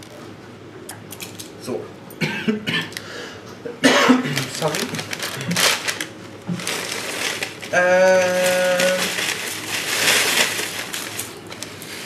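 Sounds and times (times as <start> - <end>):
cornflakes poured into a mortar: 8.4 - 11.3.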